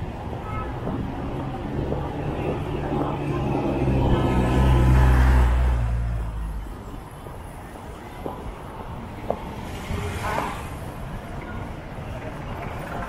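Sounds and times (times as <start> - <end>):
vehicle engine drone: 0.0 - 7.9
hum of traffic: 0.0 - 13.0.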